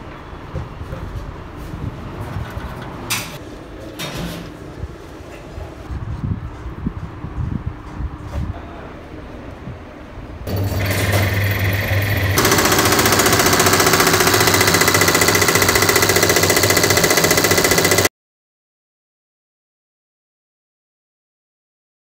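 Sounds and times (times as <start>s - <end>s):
injection pump rattling: 10.5s - 18.1s
test bench drive: 10.5s - 18.1s.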